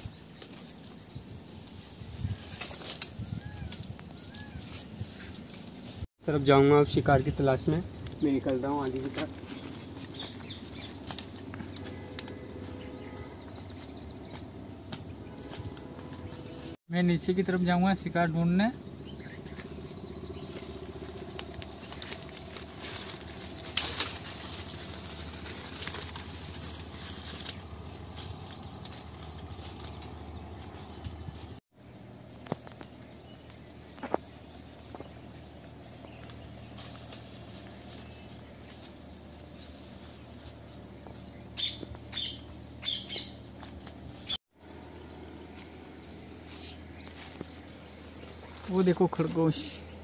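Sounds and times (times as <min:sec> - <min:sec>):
branches brushing past: 0:00.0 - 0:06.1, 0:07.4 - 0:16.8, 0:19.2 - 0:31.6, 0:32.3 - 0:50.0
low background hum: 0:00.2 - 0:50.0
footsteps on dry leaves: 0:07.9 - 0:16.8, 0:19.2 - 0:31.6, 0:33.5 - 0:50.0
bird harsh calls: 0:18.8 - 0:31.6, 0:41.1 - 0:43.6.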